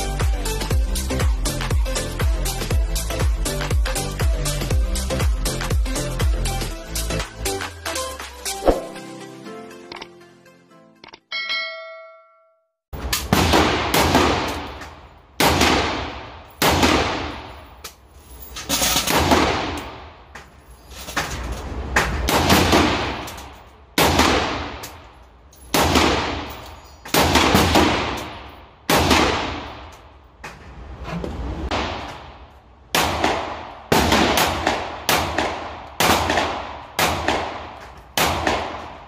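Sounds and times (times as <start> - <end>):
rifle shots echoing indoors: 13.1 - 14.8, 15.4 - 17.6, 24.0 - 24.9, 25.7 - 30.0, 31.7 - 39.0.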